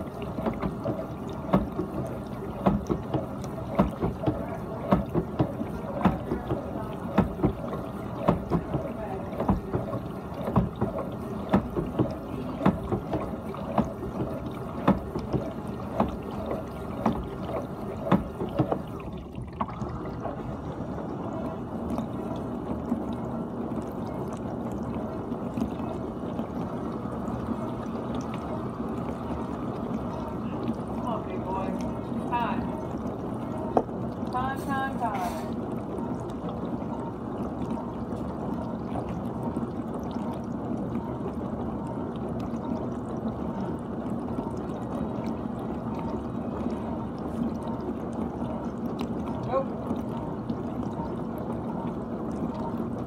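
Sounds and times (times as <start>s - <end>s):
water splashing against racks: 0.0s - 53.0s.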